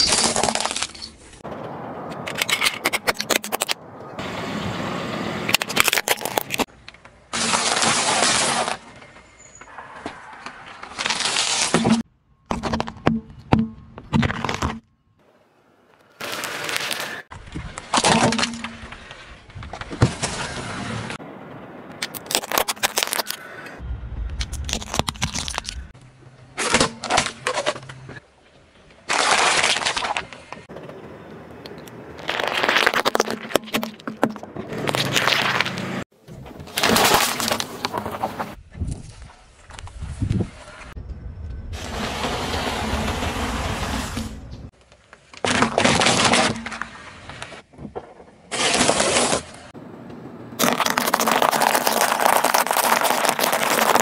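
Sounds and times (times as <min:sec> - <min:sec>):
plastic toy cars cracking: 0:00.0 - 0:01.1, 0:02.3 - 0:03.8, 0:05.5 - 0:08.8, 0:16.2 - 0:20.5, 0:22.0 - 0:23.4, 0:24.4 - 0:25.9, 0:29.0 - 0:30.7, 0:31.6 - 0:36.0, 0:36.6 - 0:38.3, 0:44.9 - 0:47.6, 0:50.6 - 0:54.0
sharp cracks and snaps: 0:21.9 - 0:23.5, 0:24.2 - 0:26.0
plastic packaging crackling: 0:22.1 - 0:23.4, 0:32.2 - 0:34.0, 0:50.6 - 0:54.0
tyre crushing crunchy food: 0:24.4 - 0:25.9, 0:32.2 - 0:35.9, 0:50.6 - 0:54.0.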